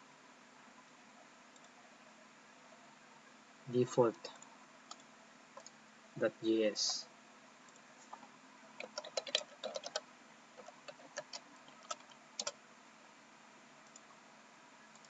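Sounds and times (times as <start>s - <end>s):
computer keyboard typing: 4.3s - 5.8s, 8.8s - 10.0s, 10.6s - 12.6s.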